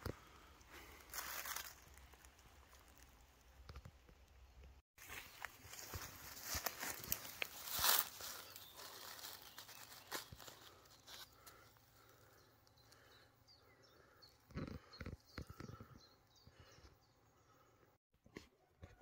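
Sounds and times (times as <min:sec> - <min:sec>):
grass rustling: 0:00.8 - 0:03.4, 0:05.0 - 0:12.3.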